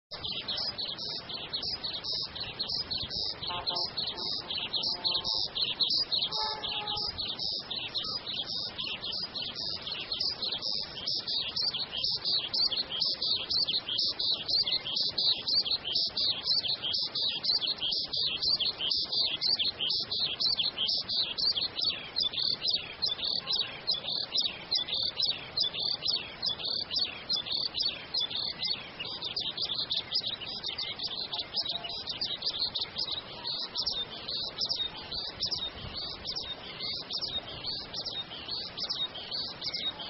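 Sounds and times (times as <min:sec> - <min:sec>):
rapid high-pitched chirping: 0:00.1 - 0:40.0
fainter lower calls: 0:01.4 - 0:08.8.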